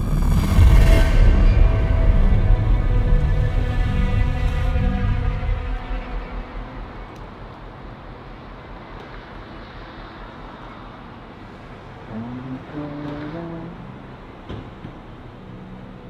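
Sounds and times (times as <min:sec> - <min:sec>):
short rising tone: 0:00.0 - 0:08.5
tense film score music: 0:00.0 - 0:11.4
road traffic hum: 0:00.0 - 0:16.0.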